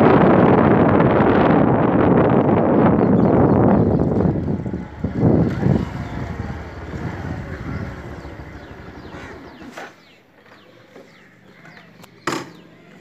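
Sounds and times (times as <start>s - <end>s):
wind noise: 0.0s - 9.8s
motorbike engine rumble: 0.0s - 13.0s
faint bird chirps: 5.8s - 13.0s.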